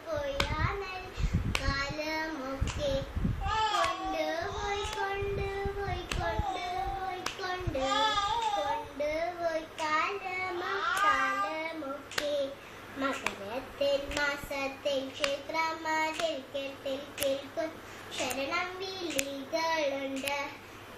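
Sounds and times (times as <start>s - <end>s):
person singing in high voice: 0.0s - 20.6s
sharp rhythmic taps: 0.4s - 0.7s, 6.0s - 6.3s, 7.2s - 7.5s, 12.1s - 12.4s, 14.1s - 17.5s, 18.2s - 19.4s, 20.1s - 20.5s.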